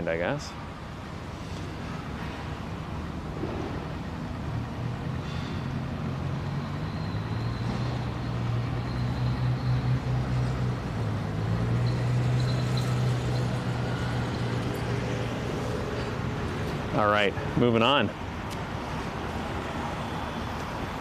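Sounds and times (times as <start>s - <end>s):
street noise: 0.0s - 21.0s
vehicle engine humming: 0.0s - 21.0s.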